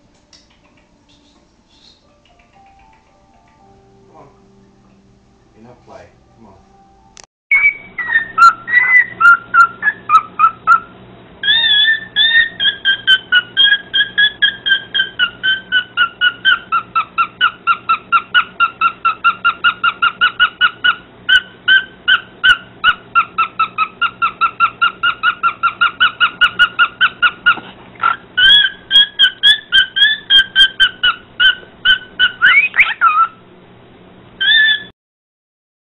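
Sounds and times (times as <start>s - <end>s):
cockatiel chirping rapidly: 7.5s - 33.4s, 34.4s - 34.9s.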